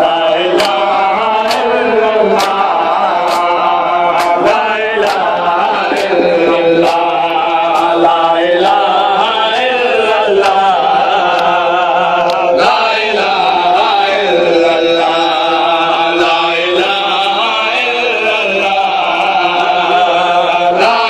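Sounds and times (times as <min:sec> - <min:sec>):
men chanting a lament: 0:00.0 - 0:21.0
chest-beating slaps: 0:00.6 - 0:00.8, 0:01.4 - 0:01.7, 0:02.4 - 0:03.6, 0:04.2 - 0:04.4, 0:05.0 - 0:05.3.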